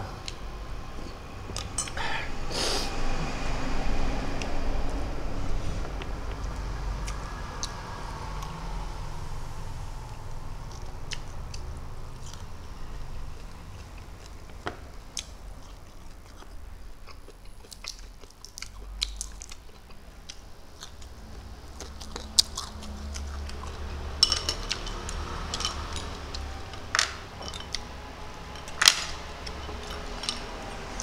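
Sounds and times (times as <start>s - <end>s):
person chewing food: 10.7s - 12.7s, 13.3s - 31.0s.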